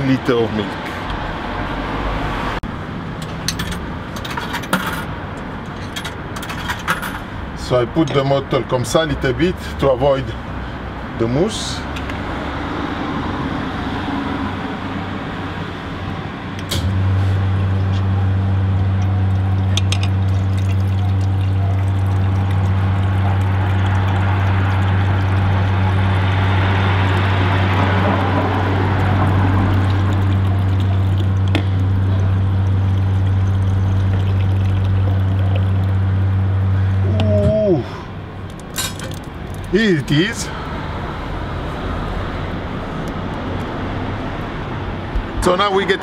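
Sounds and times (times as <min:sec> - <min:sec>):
machine low hum: 0:16.6 - 0:39.0
milk pouring into glass bottle: 0:32.5 - 0:35.8.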